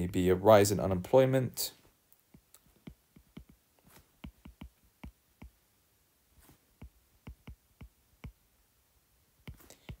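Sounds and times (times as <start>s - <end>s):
stylus tapping on tablet screen: 2.3s - 5.6s, 6.4s - 8.5s, 9.4s - 10.0s.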